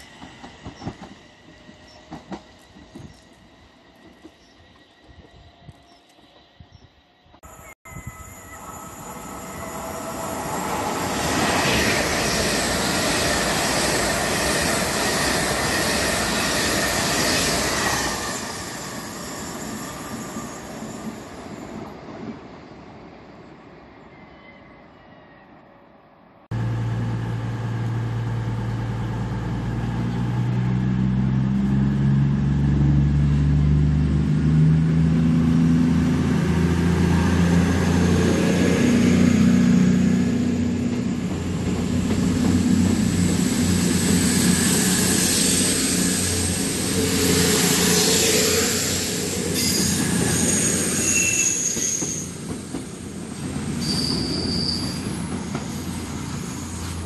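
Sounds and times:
train wheels rushing on rail: 0.0 - 6.8, 8.4 - 23.6, 35.8 - 57.0
diesel train engines humming: 26.5 - 51.0.

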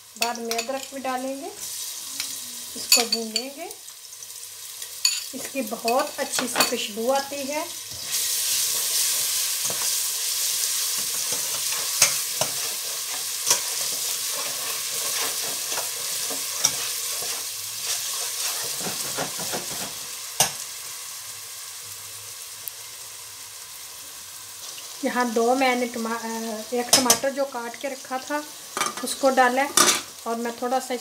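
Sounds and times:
onions sizzling in oil: 0.0 - 31.0
metal spoon clinking against pot: 0.2 - 0.9.

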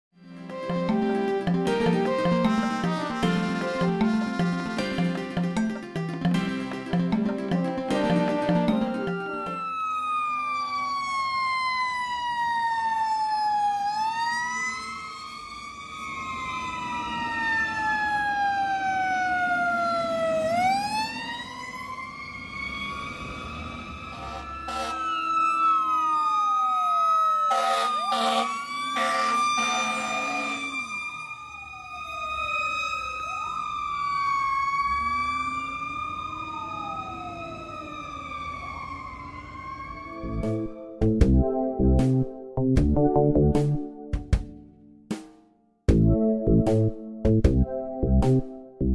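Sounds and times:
sirens wailing: 0.5 - 6.2, 6.8 - 44.1
short loud horn blasts: 24.2 - 25.0.

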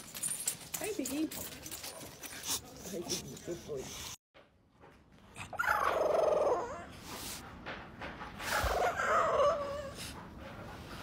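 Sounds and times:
puppy whining: 5.4 - 7.0, 8.4 - 10.2.

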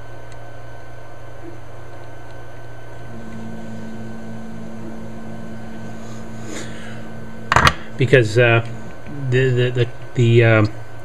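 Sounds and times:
steady low hum: 0.0 - 11.0
second steady tone: 3.1 - 9.9.

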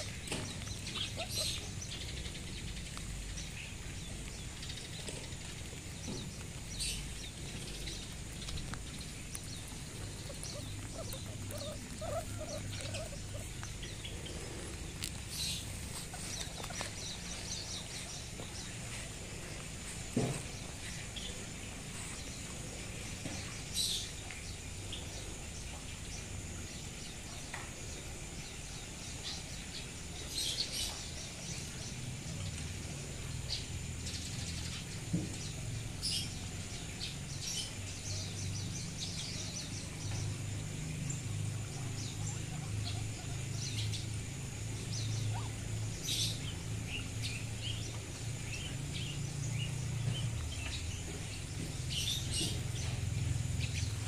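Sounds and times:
small animals chirping and squeaking: 0.0 - 24.2.

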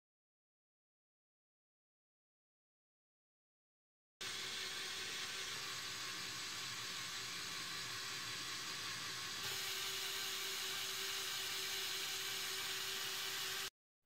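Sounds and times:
toy motor and gears whirring: 4.2 - 13.7.

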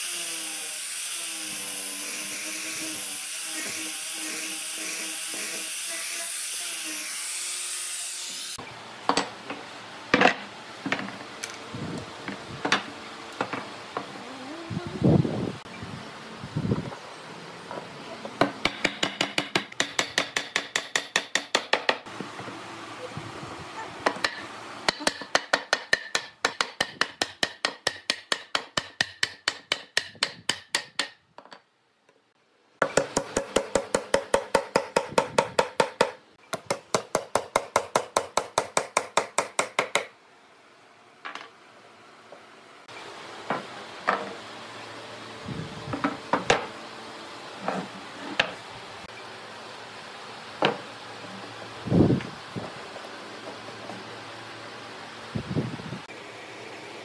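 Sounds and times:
hand saw cutting wood: 0.0 - 8.6.

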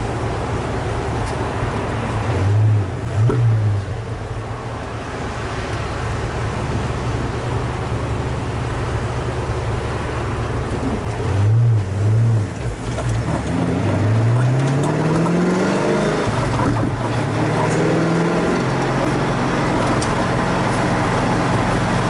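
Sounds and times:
car engine revving: 5.4 - 22.0.

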